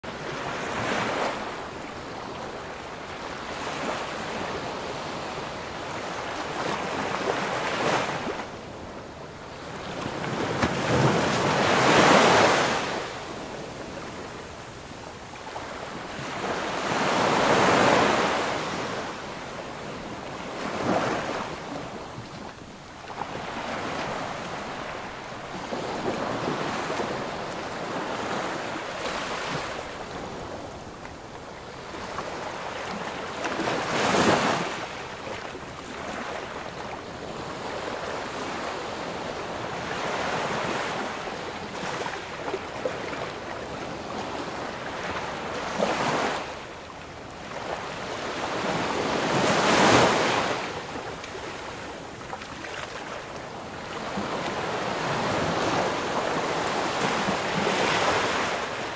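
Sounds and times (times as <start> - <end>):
ocean waves breaking on beach: 0.1 - 58.9.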